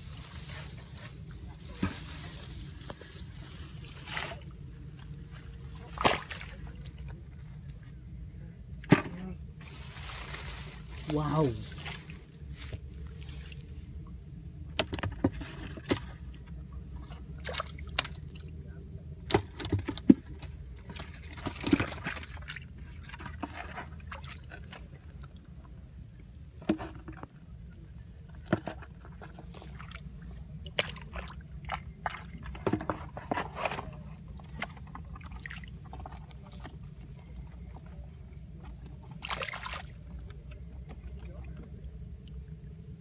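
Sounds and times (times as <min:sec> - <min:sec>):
hands splashing in muddy water: 0:05.8 - 0:07.1, 0:39.1 - 0:40.0.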